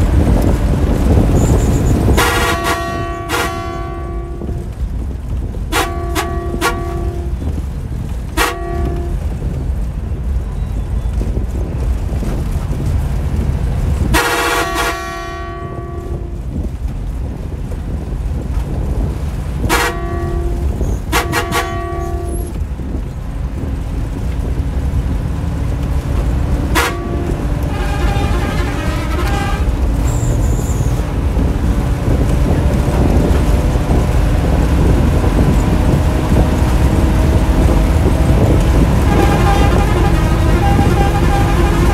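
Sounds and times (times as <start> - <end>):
engine and road rumble: 0.0 - 41.9
bus horn toots: 0.2 - 9.6, 14.0 - 16.7, 19.4 - 22.6, 26.4 - 41.9.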